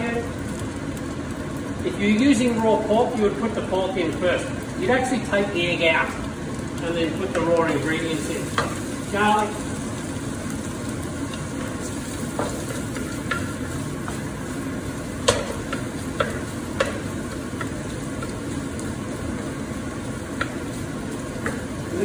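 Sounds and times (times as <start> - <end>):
food sizzling in hot oil: 0.0 - 22.0
spatula knocking pan: 12.2 - 14.4, 15.2 - 18.5, 20.2 - 21.9.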